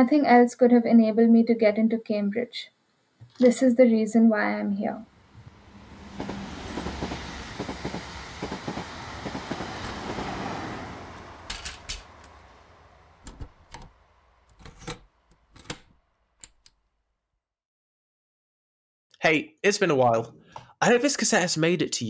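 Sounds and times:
rushing noise with rattling clicks: 5.3 - 16.7.

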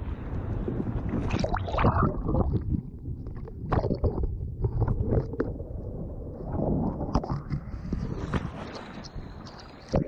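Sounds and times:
low rumble of water on microphone: 0.0 - 10.0.

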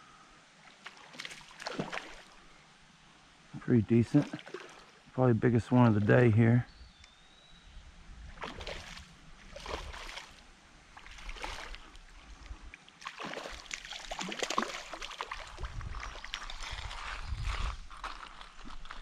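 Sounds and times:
creek water splashing: 0.6 - 2.6, 3.8 - 6.3, 8.2 - 17.3.

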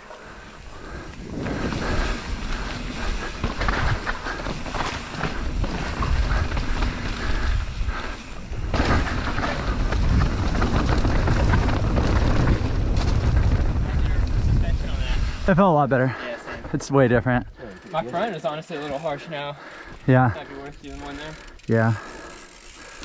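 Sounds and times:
bike rattling over rough ground: 0.0 - 23.0
bike tyre noise: 0.0 - 23.0
wind buffeting microphone: 0.6 - 15.6.

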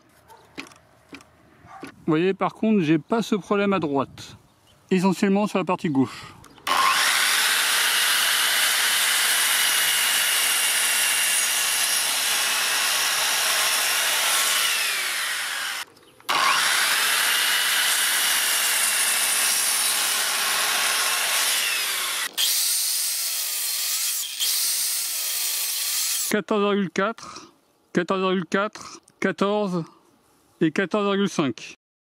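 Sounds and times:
mitre saw cutting wood: 6.6 - 26.3.

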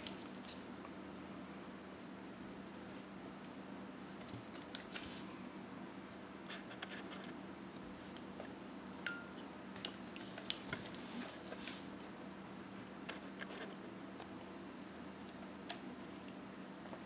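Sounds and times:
brief metallic ring: 9.0 - 9.4.

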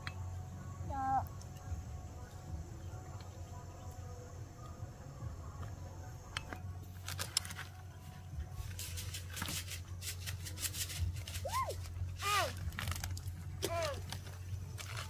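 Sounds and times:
steady low hum: 0.0 - 15.0
rustling: 6.9 - 15.0.

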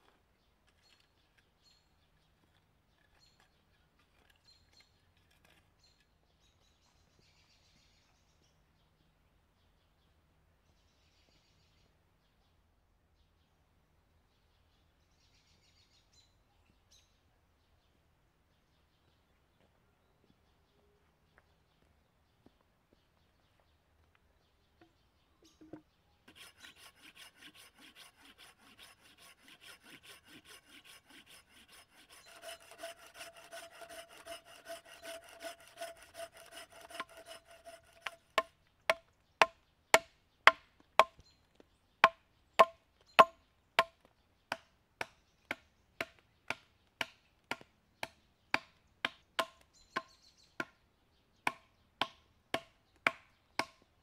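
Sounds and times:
hand saw cutting log: 25.7 - 39.5, 42.0 - 43.9.

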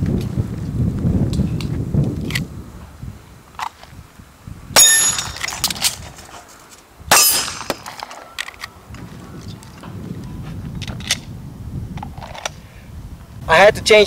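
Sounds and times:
metallic ring of steel target: 4.8 - 5.7, 7.1 - 7.8
handgun shots: 7.1 - 8.0.

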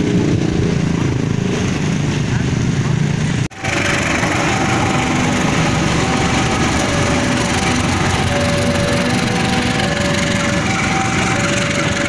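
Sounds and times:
train passing on rails: 0.0 - 12.0
short steady tones: 3.5 - 12.0.

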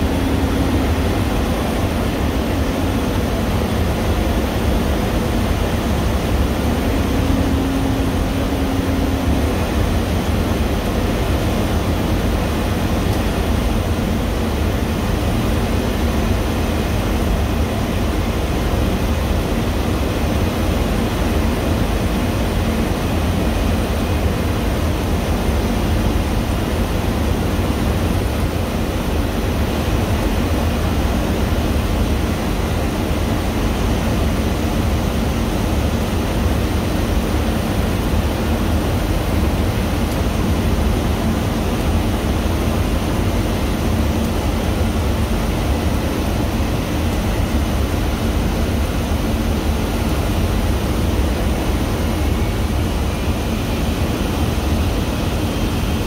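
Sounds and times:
jet engines and rushing air: 0.0 - 56.0.

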